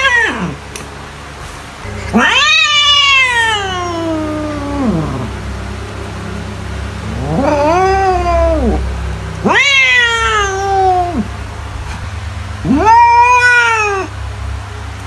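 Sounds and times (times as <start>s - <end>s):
cat meowing: 0.0s - 0.6s, 1.8s - 5.4s, 7.0s - 8.8s, 9.4s - 11.3s, 12.6s - 14.2s
steady low hum: 0.0s - 15.0s.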